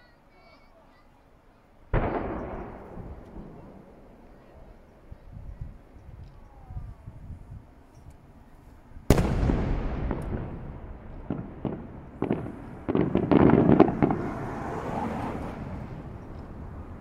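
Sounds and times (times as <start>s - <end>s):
smaller firework cracks and booms: 1.9s - 6.0s, 9.0s - 17.0s
firework boom with rolling echo: 1.9s - 7.7s, 9.0s - 17.0s.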